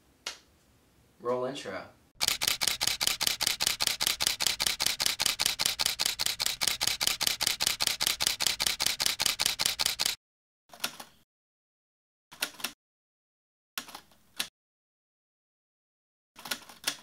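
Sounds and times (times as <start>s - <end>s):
camera shutter clicking: 2.2s - 10.2s.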